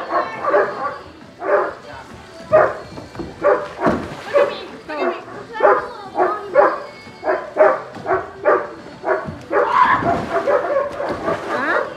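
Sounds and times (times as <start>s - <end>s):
dog barking: 0.0s - 1.8s, 2.5s - 2.8s, 3.4s - 11.9s
splash into pool: 3.8s - 4.5s, 9.7s - 11.9s.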